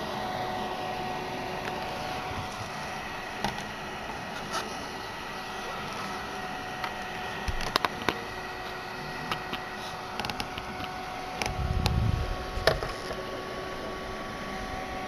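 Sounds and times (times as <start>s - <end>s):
small fan humming: 0.0s - 15.0s.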